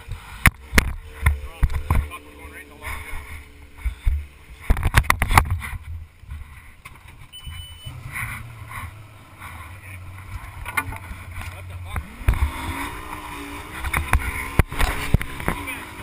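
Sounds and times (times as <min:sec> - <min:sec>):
jet boat rumble: 0:00.0 - 0:16.0
sharp knocks and thumps: 0:00.4 - 0:02.2, 0:03.1 - 0:07.3
short high beep: 0:07.3 - 0:08.0.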